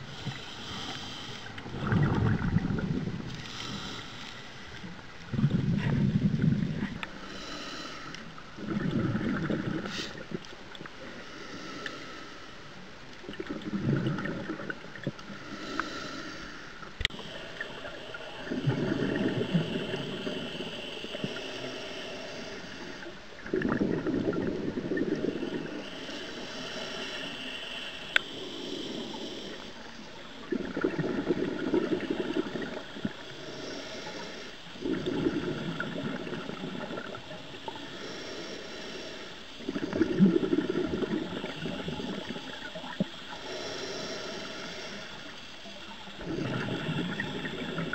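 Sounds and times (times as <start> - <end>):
regulator hiss: 0.0 - 8.6, 14.5 - 47.9
regulator exhaled bubbles gurgling: 1.4 - 4.0, 4.6 - 7.3, 8.5 - 11.0, 13.2 - 15.3, 17.1 - 21.5, 23.0 - 26.4, 29.8 - 33.4, 34.6 - 37.9, 39.6 - 43.4, 45.8 - 47.9.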